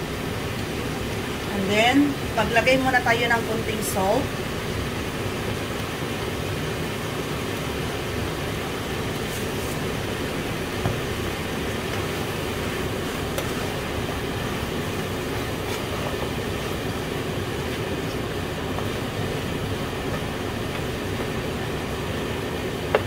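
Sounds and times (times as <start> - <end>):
chicken sizzling in frying pan: 3.6 - 23.0
wooden spatula stirring: 10.7 - 23.0.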